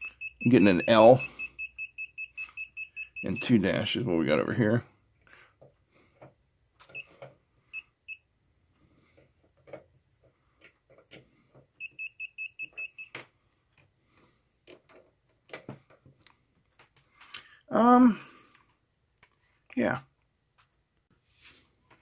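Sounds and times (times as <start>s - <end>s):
multimeter beeping: 0.0s - 3.5s, 7.7s - 8.3s, 11.8s - 13.2s
handling clicks and knocks: 9.2s - 11.8s, 14.6s - 17.4s.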